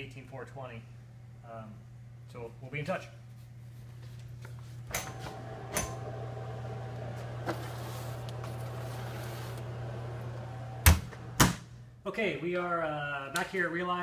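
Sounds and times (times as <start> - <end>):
oven fan humming: 0.0 - 12.0
oven door banging shut: 10.8 - 11.6.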